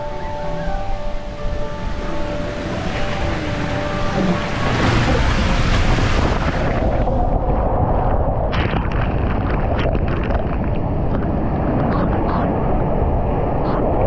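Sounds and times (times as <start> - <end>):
water rushing down slide: 1.7 - 12.8
water splashing on camera: 2.0 - 12.6.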